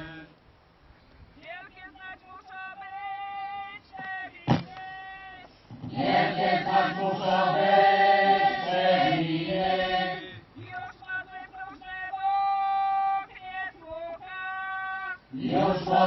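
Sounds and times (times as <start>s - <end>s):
voices chanting together: 0.0s - 0.4s, 5.7s - 10.6s, 15.2s - 16.0s.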